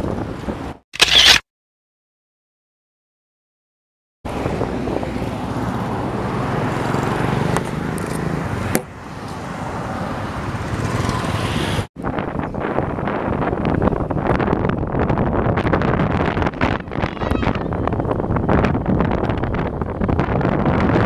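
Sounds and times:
wind buffeting microphone: 0.0 - 0.8, 4.3 - 8.8, 10.5 - 21.0
motorcycle and traffic noise: 4.3 - 21.0.

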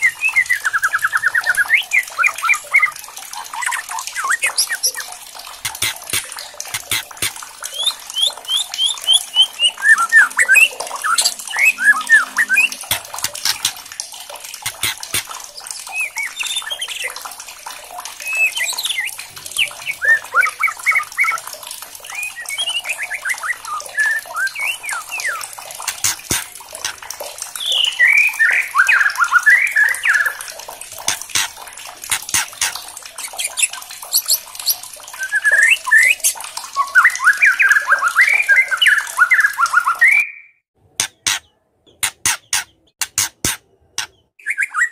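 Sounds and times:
bird whistling song: 0.0 - 3.0, 7.7 - 13.7, 18.2 - 21.4, 22.1 - 25.5, 27.6 - 30.4, 33.5 - 41.4, 44.4 - 44.9
bird clicking crackles: 4.5 - 7.9, 12.7 - 14.0, 14.6 - 15.5, 25.8 - 27.0.

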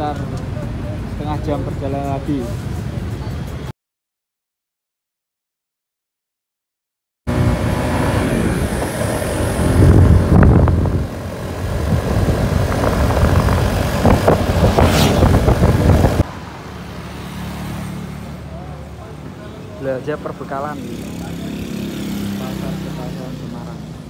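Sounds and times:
wind rushing over microphone: 7.3 - 16.3
motorcycle engine and road noise: 7.3 - 24.0.

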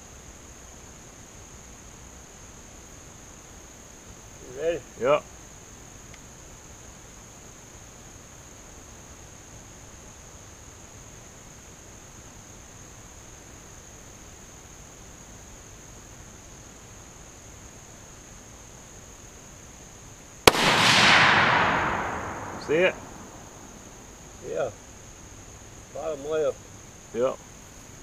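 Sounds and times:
rifle shot with long echo: 20.5 - 24.0.

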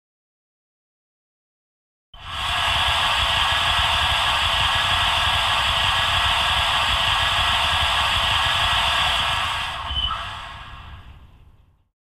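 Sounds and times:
compressed-air hiss: 2.2 - 11.2
low rumble: 2.2 - 11.7.

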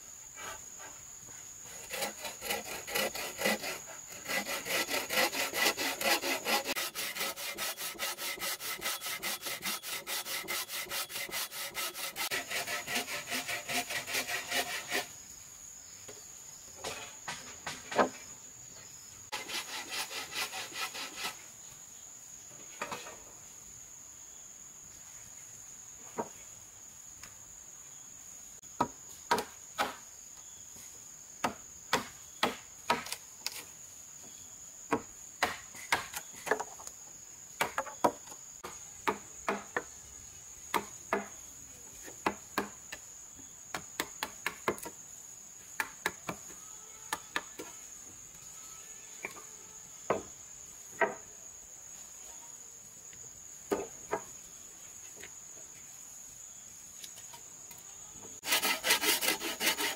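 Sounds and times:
high insect drone: 0.0 - 59.9.

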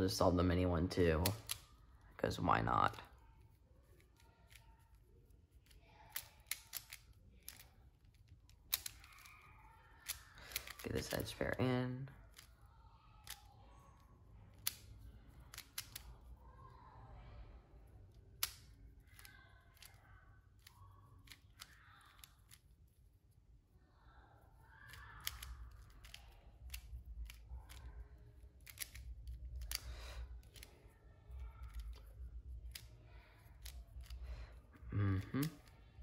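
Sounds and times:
puzzle cube clicking and sliding: 5.6 - 11.5, 14.5 - 16.2, 18.4 - 20.0, 20.6 - 22.7, 24.9 - 34.3.

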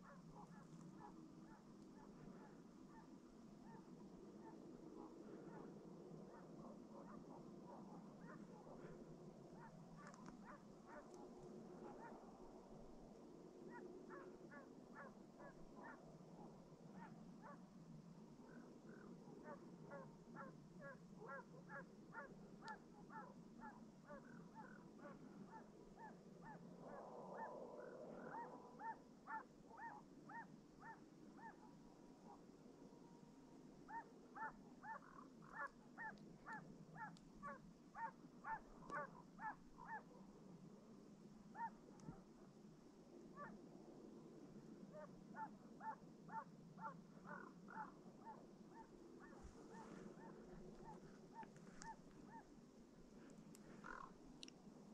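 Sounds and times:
hound baying: 13.7 - 16.0, 18.9 - 31.7, 33.9 - 40.1, 44.9 - 52.5.

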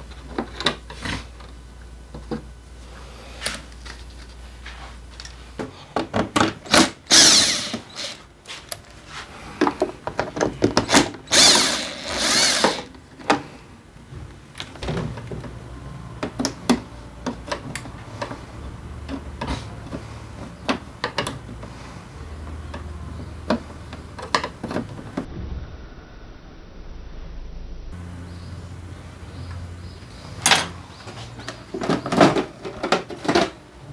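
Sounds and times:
power screwdriver whirring: 6.7 - 8.2, 10.9 - 12.9
low hum: 25.2 - 31.0.

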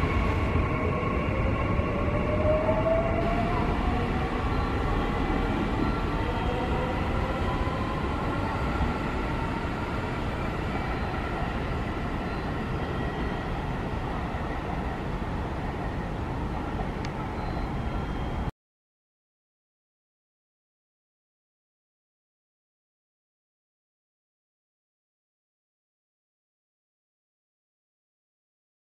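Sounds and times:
train running noise: 0.0 - 18.5.

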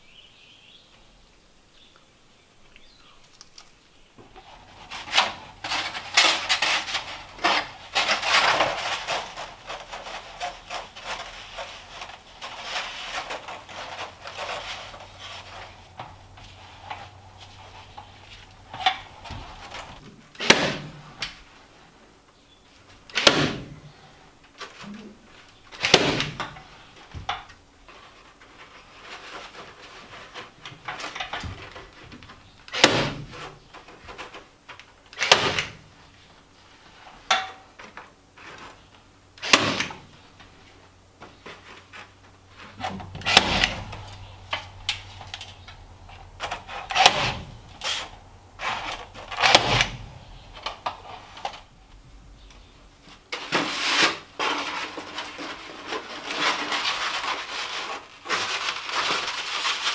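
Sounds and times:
foam rustling: 4.2 - 22.0, 38.3 - 59.9.

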